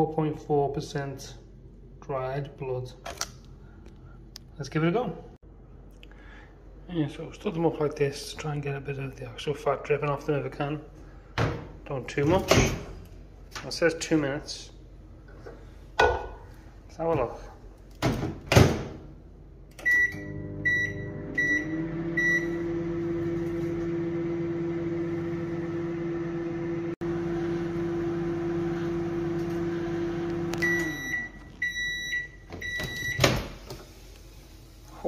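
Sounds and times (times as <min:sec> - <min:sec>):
microwave oven humming: 0:19.4 - 0:33.3
microwave key beeps: 0:19.8 - 0:22.6, 0:30.6 - 0:33.3.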